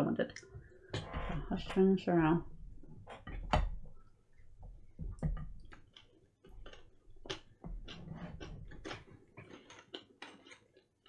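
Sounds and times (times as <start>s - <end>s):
chewing crunchy bar: 5.6s - 11.0s.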